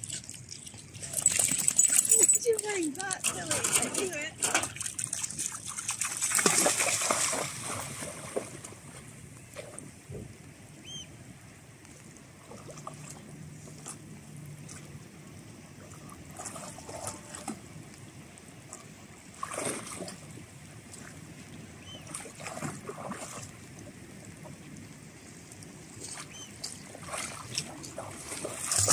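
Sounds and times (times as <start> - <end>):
dog splashing in water: 0.0 - 9.0, 19.3 - 20.2, 26.1 - 28.9
shallow water sloshing: 0.0 - 10.4, 12.0 - 28.9.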